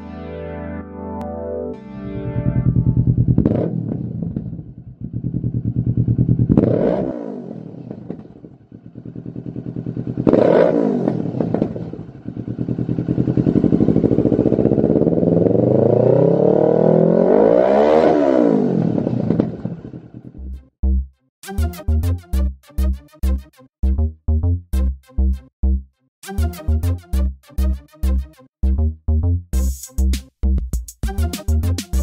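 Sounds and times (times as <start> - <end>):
motorcycle engine revving: 2.3 - 20.4.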